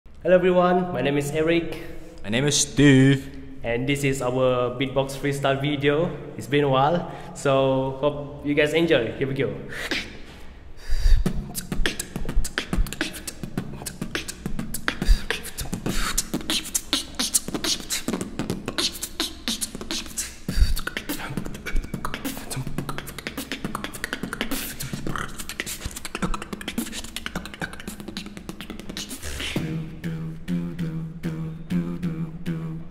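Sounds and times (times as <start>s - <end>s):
beatboxing: 8.3s - 32.9s.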